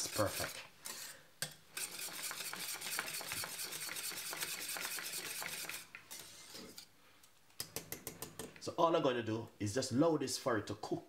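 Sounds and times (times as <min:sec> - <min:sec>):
whisk wires clicking on pot: 0:00.0 - 0:06.8, 0:07.6 - 0:08.7
whisk stirring thick porridge: 0:00.0 - 0:06.9.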